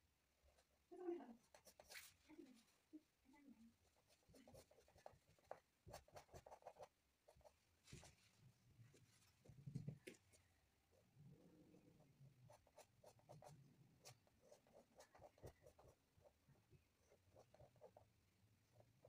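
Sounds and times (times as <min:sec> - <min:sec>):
paintbrush taps and scratches: 0:04.0 - 0:10.5.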